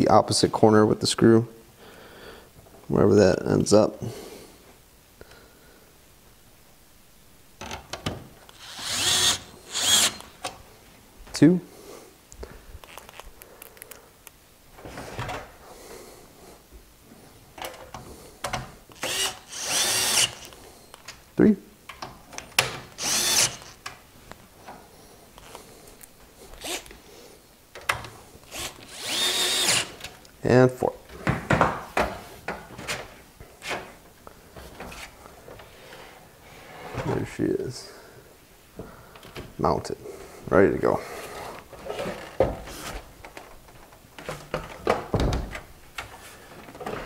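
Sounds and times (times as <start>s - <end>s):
electric screwdriver running: 8.5s - 10.3s, 19.0s - 20.6s, 23.0s - 23.8s, 26.6s - 26.9s, 28.5s - 30.0s.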